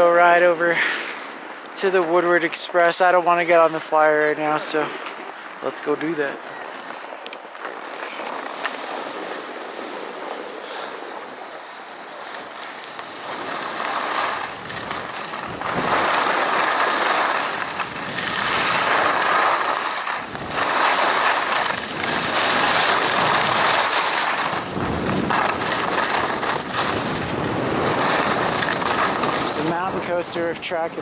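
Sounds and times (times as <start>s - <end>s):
wind buffeting microphone: 3.0s - 31.0s
skis scraping on snow: 5.8s - 31.0s.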